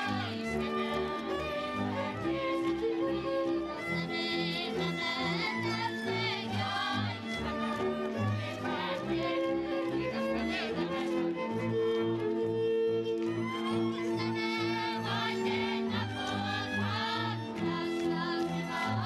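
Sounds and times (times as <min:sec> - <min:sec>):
fiddle folk dance music: 0:00.0 - 0:19.0.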